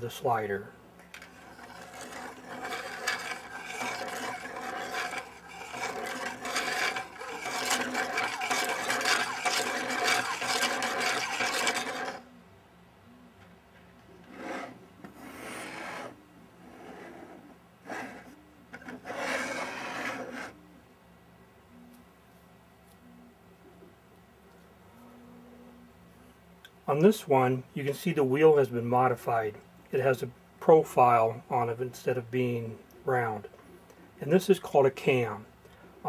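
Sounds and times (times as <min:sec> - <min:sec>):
mechanism scraping and rubbing: 0:01.1 - 0:12.2, 0:14.2 - 0:20.6
quiet rubbing while handled: 0:01.2 - 0:12.2, 0:14.2 - 0:20.6.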